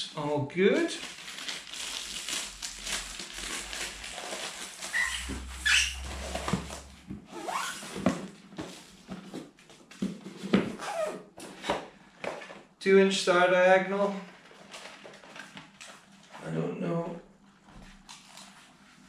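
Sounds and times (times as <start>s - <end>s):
packaging rustling: 1.0s - 6.1s.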